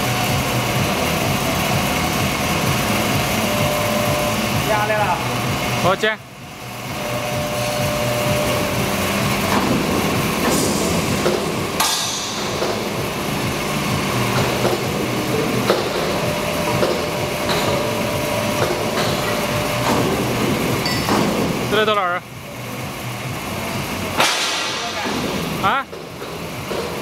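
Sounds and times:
faint steady whine: 0:00.0 - 0:27.0
hydraulic machine running: 0:00.0 - 0:27.0
sharp metal knocks: 0:09.4 - 0:13.0, 0:15.6 - 0:18.0, 0:18.6 - 0:21.7, 0:24.2 - 0:27.0.

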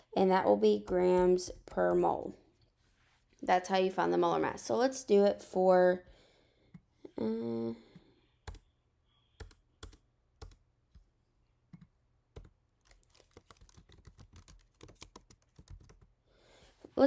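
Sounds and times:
computer keyboard typing: 0:08.4 - 0:08.7, 0:09.4 - 0:10.6, 0:11.7 - 0:16.1.

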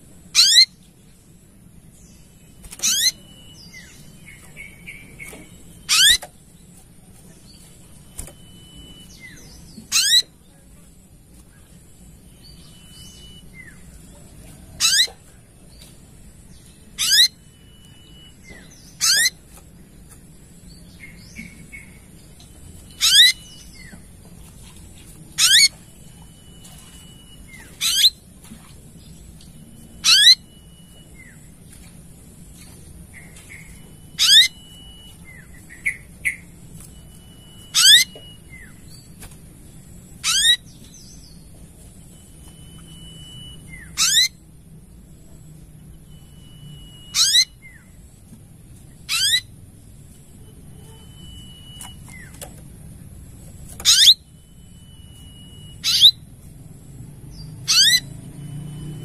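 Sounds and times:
bird song with sweeping high notes: 0:00.2 - 0:10.4, 0:11.8 - 0:14.1, 0:14.8 - 0:19.9, 0:20.6 - 0:48.2, 0:53.8 - 0:59.0
soft bird chirps: 0:00.3 - 0:52.7, 0:53.4 - 0:59.0
thin held bird whistle: 0:50.8 - 0:52.4, 0:54.8 - 0:56.2.

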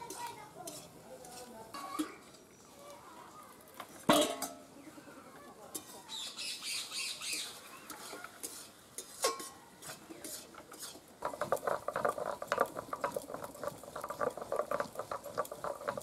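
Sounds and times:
metal spatula scraping a pan: 0:00.0 - 0:02.2, 0:07.8 - 0:16.0.

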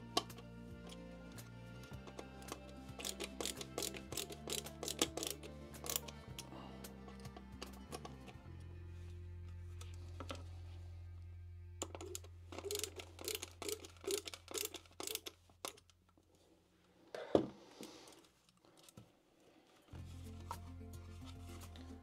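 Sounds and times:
low steady hum: 0:00.0 - 0:15.6
hands clicking plastic parts: 0:00.1 - 0:08.4, 0:11.8 - 0:16.2.

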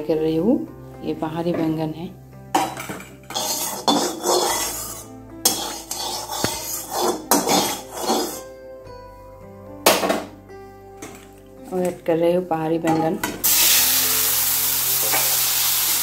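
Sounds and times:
metal spatula scraping metal pan: 0:02.6 - 0:08.5.

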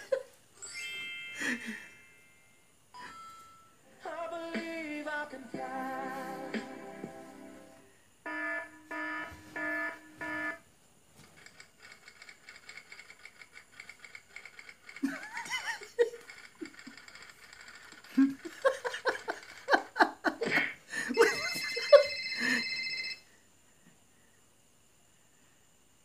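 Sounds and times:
phone ringtone: 0:00.6 - 0:03.8, 0:08.3 - 0:10.6, 0:21.2 - 0:23.3
faint rapid ticking: 0:11.4 - 0:15.3, 0:16.0 - 0:19.8.

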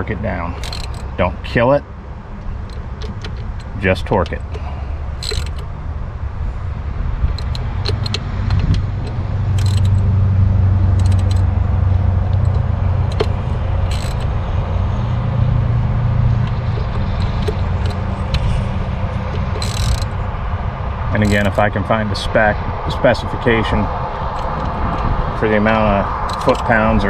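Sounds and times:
steady low rumble: 0:00.0 - 0:27.0
wrench clicking on metal: 0:00.5 - 0:01.2, 0:05.2 - 0:05.7, 0:07.2 - 0:10.1, 0:10.9 - 0:14.4, 0:16.3 - 0:20.2, 0:21.2 - 0:21.6, 0:24.2 - 0:25.1, 0:26.1 - 0:26.9.

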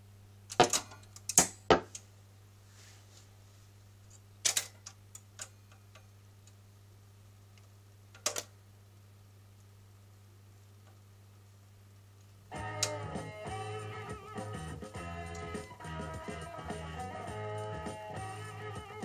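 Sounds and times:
record changer mechanical clicks: 0:07.5 - 0:08.6.

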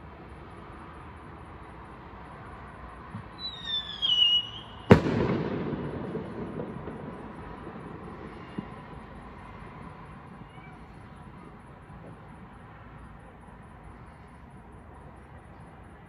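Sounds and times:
firework whistle: 0:03.3 - 0:09.4
firework bang with rumbling echo: 0:03.4 - 0:09.3.

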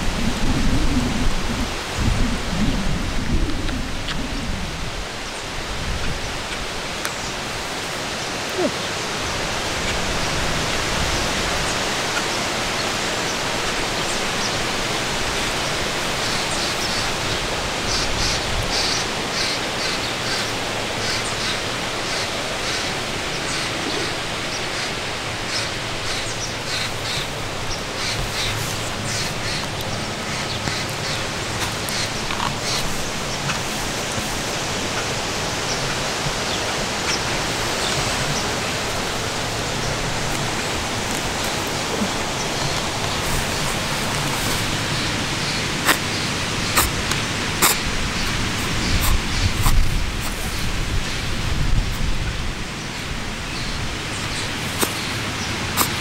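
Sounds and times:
wind on the microphone: 0:00.0 - 0:07.8, 0:08.5 - 0:12.1, 0:26.3 - 0:56.0.

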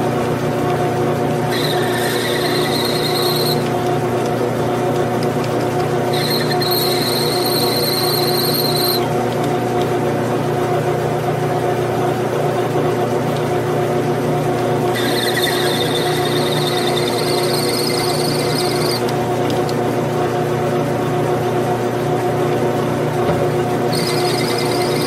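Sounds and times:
metal lathe humming: 0:01.4 - 0:05.2, 0:05.8 - 0:09.1, 0:14.7 - 0:19.8, 0:23.6 - 0:25.0
drill squealing while cutting: 0:01.5 - 0:03.7, 0:06.1 - 0:09.1, 0:14.9 - 0:19.1, 0:23.9 - 0:25.0.

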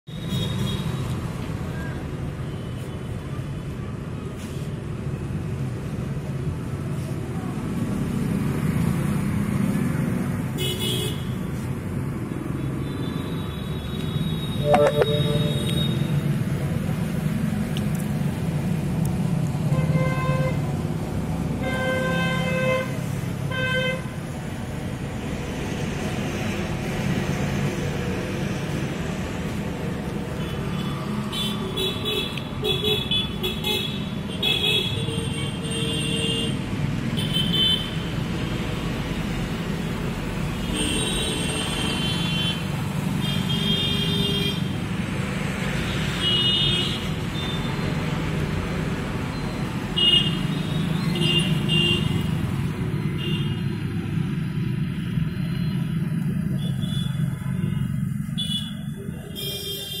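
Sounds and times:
low traffic hum: 0:00.1 - 1:00.0
motorbikes passing: 0:05.2 - 0:10.6, 0:11.4 - 0:32.6, 0:44.5 - 0:59.4
vehicle horn toots: 0:14.5 - 0:16.1.

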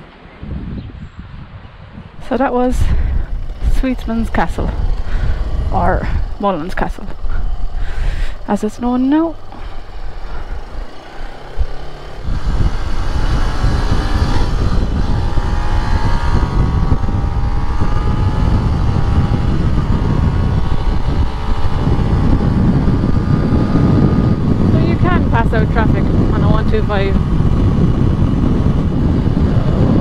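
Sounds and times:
wind and road noise: 0:00.0 - 0:30.0
motorcycle engine running: 0:02.1 - 0:30.0.

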